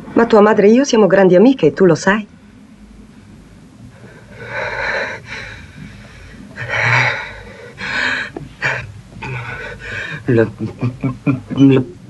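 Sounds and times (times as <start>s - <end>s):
man gasping breaths: 4.0s - 10.3s.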